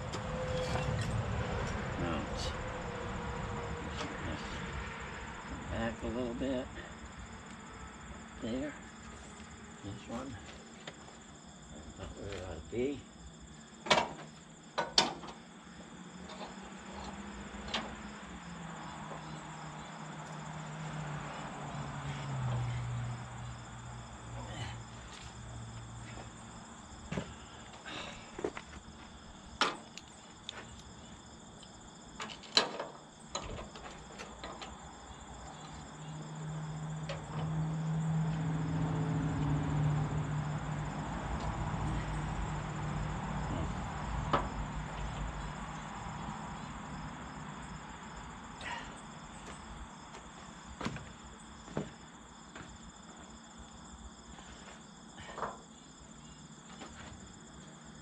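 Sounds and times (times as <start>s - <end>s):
crickets chirring: 0.0s - 58.0s
metal knocks and clanks: 13.8s - 15.4s, 32.2s - 34.8s.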